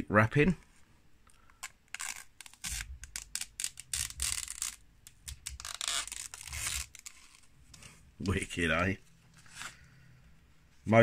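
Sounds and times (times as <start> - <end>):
plastic film being peeled off: 1.6 - 7.5.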